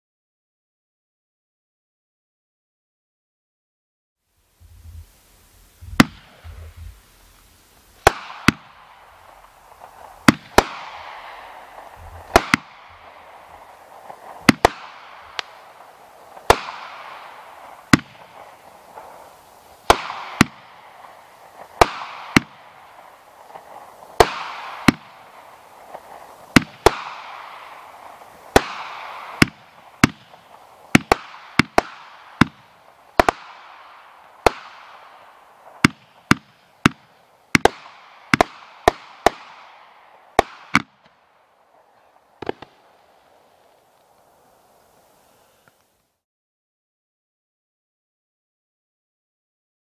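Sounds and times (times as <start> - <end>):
aerial firework shots: 5.8 - 7.3, 7.9 - 41.3, 42.4 - 43.1.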